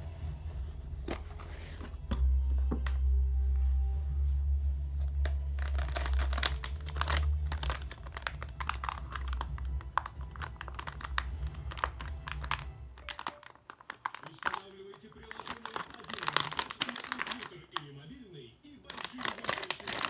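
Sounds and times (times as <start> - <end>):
steady low hum: 0.0 - 12.9
plastic bag crinkling: 5.0 - 18.2, 18.8 - 20.0.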